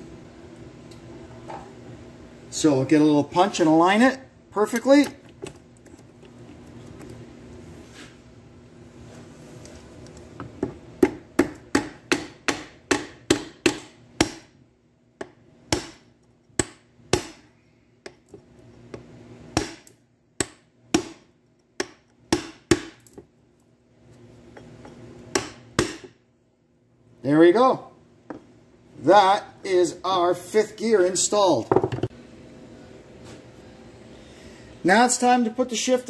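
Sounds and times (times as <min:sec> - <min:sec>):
hammer tapping metal punch: 0:10.6 - 0:14.5.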